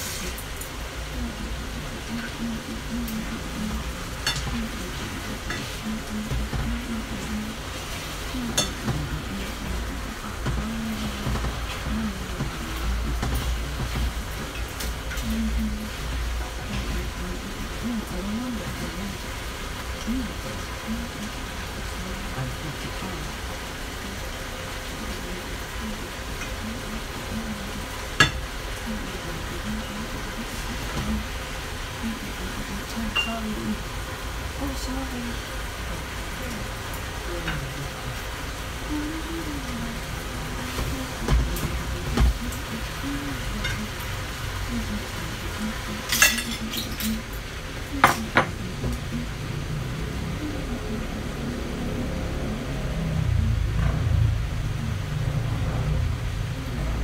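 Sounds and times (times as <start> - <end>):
sizzling in frying pan: 0.0 - 57.0
metal tongs clacking on pan: 46.1 - 47.4.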